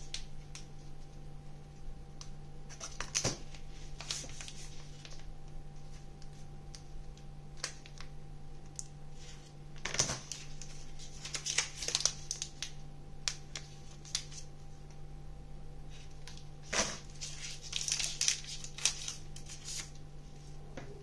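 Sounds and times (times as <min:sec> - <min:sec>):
steady low hum: 0:00.0 - 0:21.0
plastic wrappers crinkling: 0:02.7 - 0:14.5, 0:16.0 - 0:20.0.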